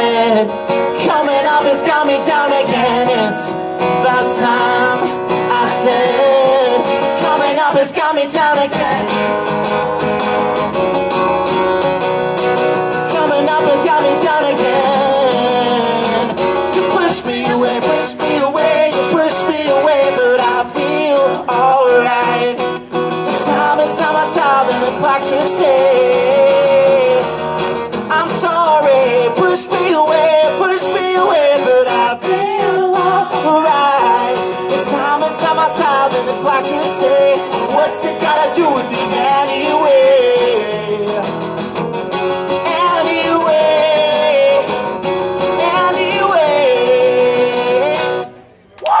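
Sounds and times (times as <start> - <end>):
man singing: 0.0 - 9.8, 12.7 - 41.8, 42.4 - 48.4
acoustic guitar strumming: 0.0 - 48.6.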